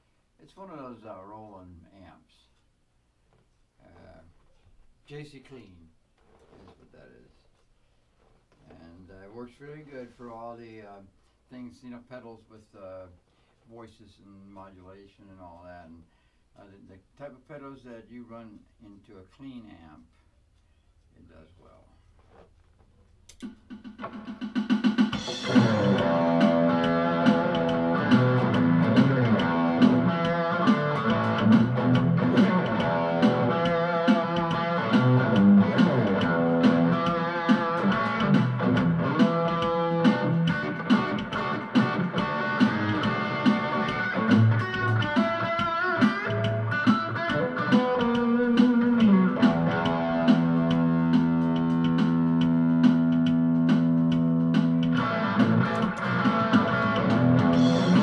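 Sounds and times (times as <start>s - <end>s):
electric guitar through crunch amp: 25.2s - 58.0s.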